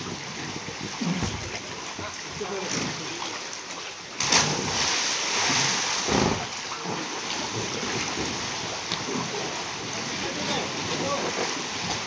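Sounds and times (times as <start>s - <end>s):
pool water splashing: 0.0s - 12.0s
dull thump: 6.0s - 6.5s.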